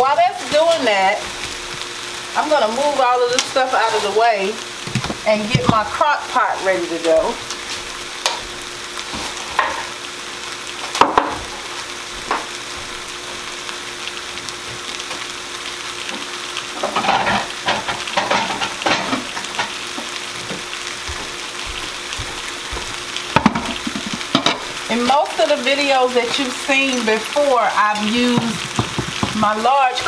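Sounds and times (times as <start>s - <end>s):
beef sizzling in a skillet: 0.0s - 30.0s
kitchen things clattering: 4.9s - 6.0s, 16.8s - 19.8s, 23.3s - 24.8s, 27.8s - 30.0s.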